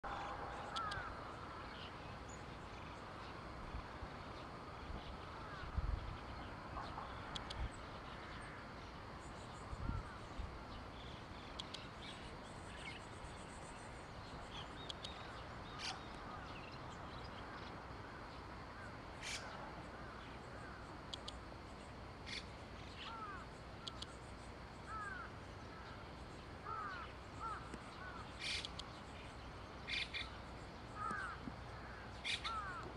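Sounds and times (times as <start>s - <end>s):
faint open-air ambience: 0.0s - 32.9s
short bird calls: 0.1s - 1.1s, 26.6s - 28.8s, 29.9s - 30.4s, 31.0s - 32.9s
sharp high clicks: 0.6s - 1.1s, 7.3s - 7.7s, 11.4s - 12.2s, 14.8s - 15.2s, 21.0s - 21.4s, 23.8s - 24.2s, 27.6s - 29.0s.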